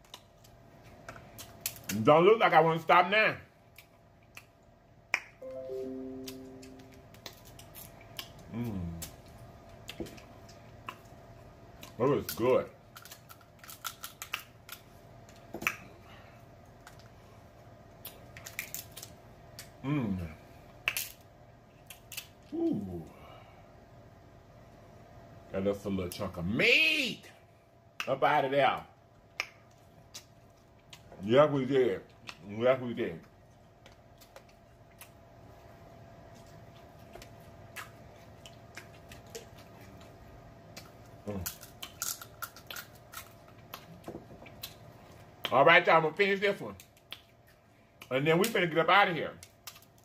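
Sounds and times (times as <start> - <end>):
crab shells cracking: 0.0 - 2.0, 7.1 - 11.0, 11.7 - 15.8, 18.0 - 19.8, 20.8 - 22.5, 40.6 - 45.6, 49.4 - 50.0.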